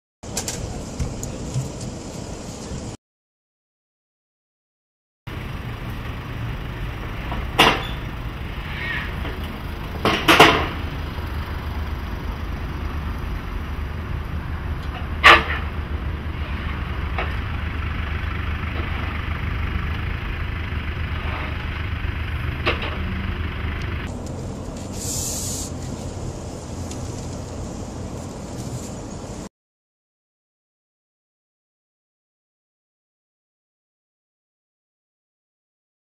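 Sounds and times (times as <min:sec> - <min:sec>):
vehicle rumbling at low speed: 0:00.2 - 0:03.0, 0:05.3 - 0:29.5
wheels knocking on ramps: 0:07.1 - 0:11.9.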